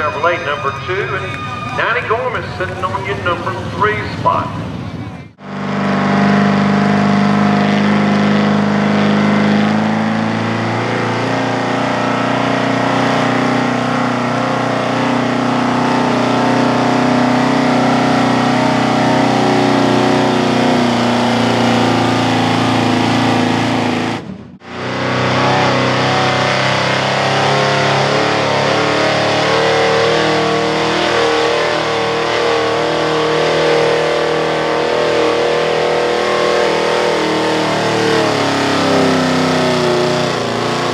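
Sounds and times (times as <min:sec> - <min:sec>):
pickup truck engine at high revs: 0:01.8 - 0:40.9.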